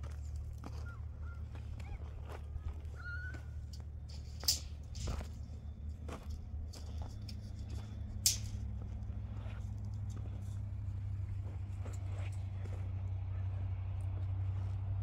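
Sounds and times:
vehicle engine idling: 0.0s - 15.0s
sharp clicks and knocks: 3.7s - 8.9s.

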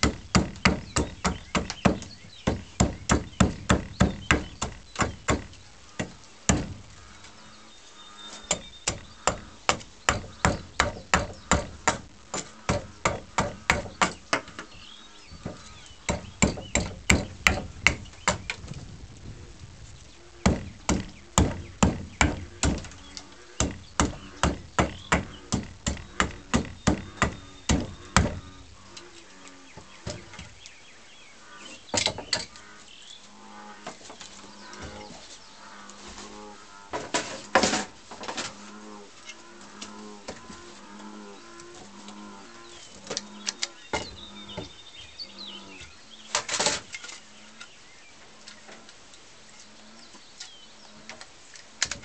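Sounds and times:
axe chopping wood: 0.0s - 6.8s, 16.1s - 18.5s, 20.4s - 22.9s, 23.6s - 28.4s.

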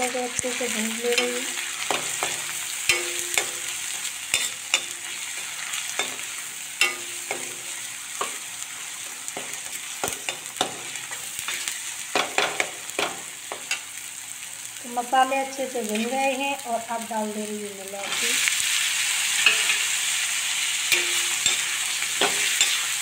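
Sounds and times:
masala sizzling in oil: 0.0s - 23.0s
spoon scraping and clinking on pan: 1.1s - 8.4s, 19.4s - 20.0s, 20.9s - 23.0s.

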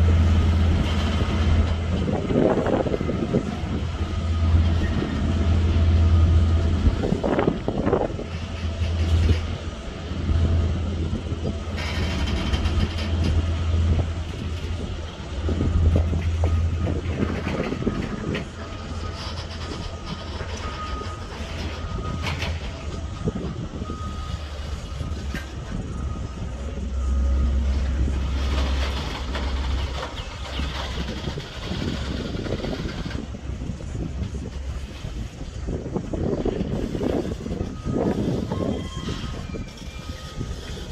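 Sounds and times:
wheel-on-rail clatter: 0.0s - 26.0s, 27.7s - 40.9s
freight train rumble: 0.0s - 40.9s
high-pitched wheel squeals: 16.4s - 22.2s, 36.7s - 40.9s.

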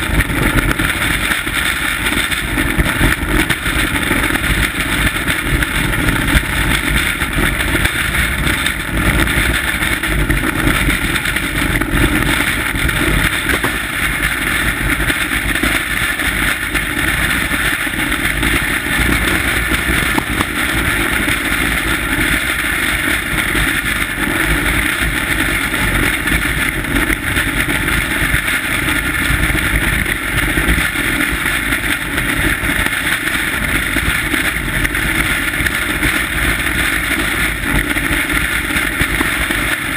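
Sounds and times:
rush of wind: 0.0s - 39.9s.

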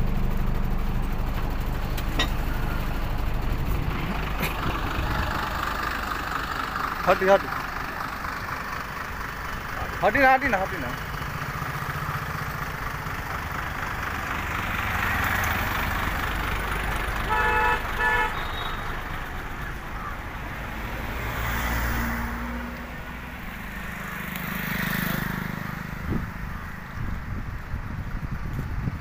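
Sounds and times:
road traffic rumble: 0.0s - 29.0s
vehicle horn tooting: 17.3s - 19.0s.

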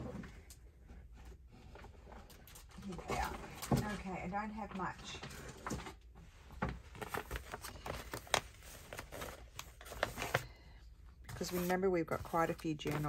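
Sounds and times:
paper rustling and tapping: 6.6s - 10.5s, 11.3s - 13.0s.

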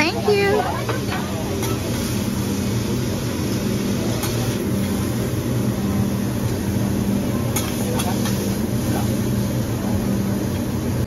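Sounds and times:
vegetables sizzling on a griddle: 0.3s - 5.4s, 6.0s - 9.6s.

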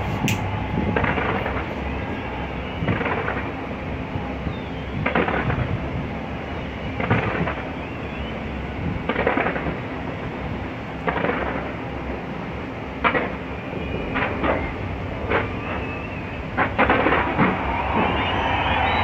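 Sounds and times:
background rumble: 0.0s - 19.0s
fireworks crackling bangs: 0.2s - 3.6s, 5.0s - 5.8s, 7.0s - 7.7s, 9.0s - 10.0s, 11.0s - 11.8s, 13.0s - 19.0s.

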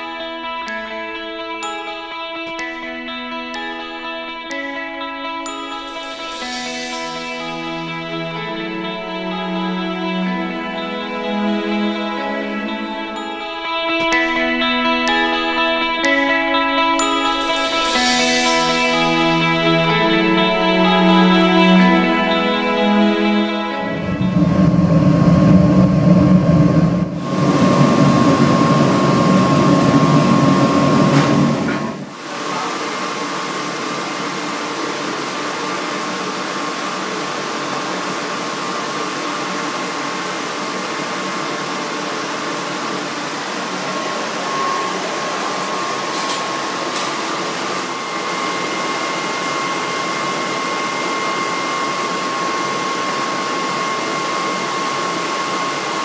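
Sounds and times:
thin steady whine: 5.6s - 56.0s
deep loud rumble: 23.8s - 32.1s
furnace rushing noise: 23.9s - 33.2s.

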